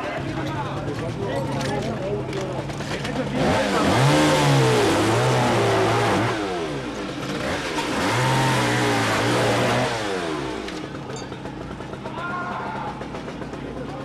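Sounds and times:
small petrol engine revving: 2.2s - 12.2s.

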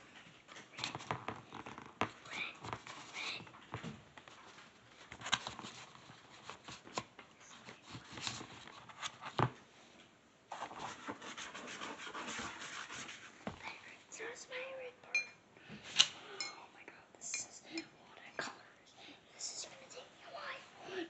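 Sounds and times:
paintbrush scratching and rubbing: 10.5s - 13.4s.

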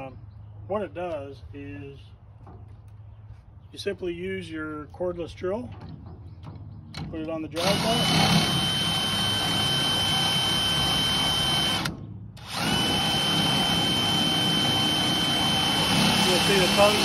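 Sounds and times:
cordless drill whining: 7.6s - 17.0s.

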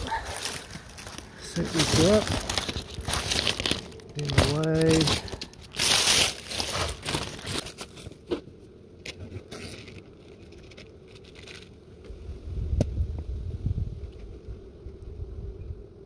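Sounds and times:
rustling and crunching dry leaves: 0.0s - 12.5s.

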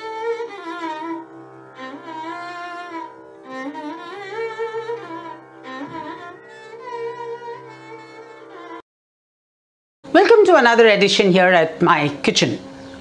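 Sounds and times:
string melody: 0.0s - 8.8s.

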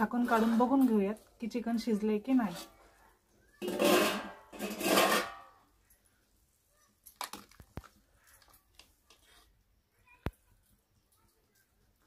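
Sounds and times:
steel lids scraping and clattering: 0.0s - 1.1s, 3.6s - 5.7s.

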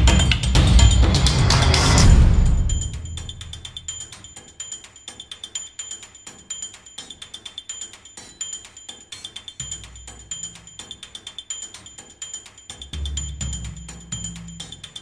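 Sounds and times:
loud hit: 0.0s - 3.9s
music with ticking percussion: 0.0s - 15.0s.

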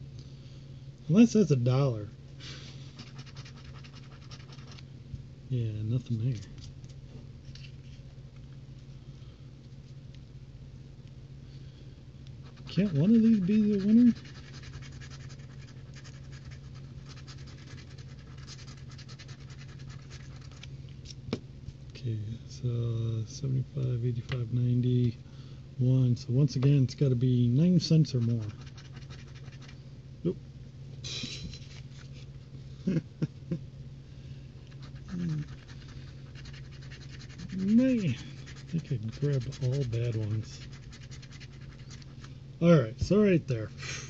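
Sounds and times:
low steady hum: 0.0s - 44.0s
scratching lottery ticket: 2.8s - 4.8s, 12.4s - 20.7s, 27.7s - 29.8s, 34.7s - 42.4s.

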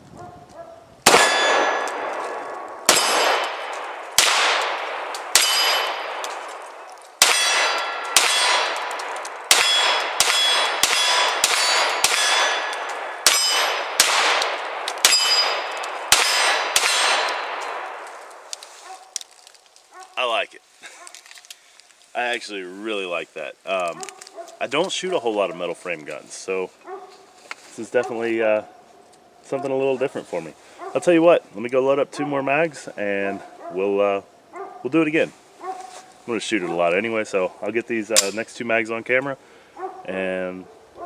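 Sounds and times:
pistol shots echoing: 1.0s - 18.2s
steel targets ringing: 1.1s - 2.0s, 2.9s - 4.4s, 5.3s - 6.2s, 7.2s - 8.8s, 9.5s - 14.3s, 15.0s - 17.6s.

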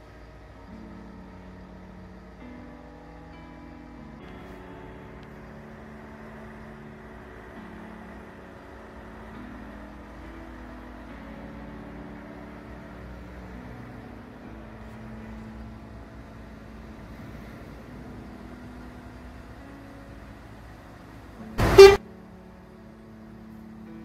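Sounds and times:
low engine hum: 0.0s - 24.0s
truck horn blast: 21.6s - 22.0s.

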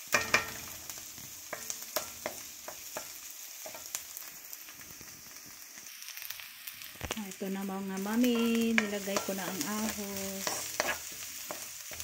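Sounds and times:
onions sizzling in hot oil: 0.0s - 12.0s
wooden spoon scraping a pan: 8.2s - 12.0s.

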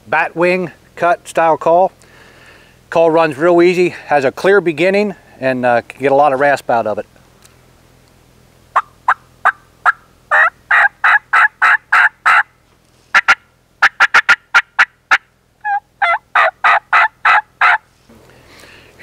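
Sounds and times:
turkey call clucks and yelps: 8.8s - 12.5s, 13.1s - 17.8s.

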